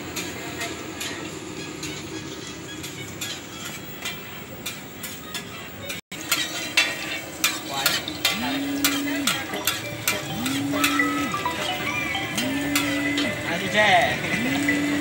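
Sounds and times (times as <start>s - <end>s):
metal spatulas clicking and scraping: 2.8s - 11.7s
food sizzling in oil: 6.1s - 15.0s.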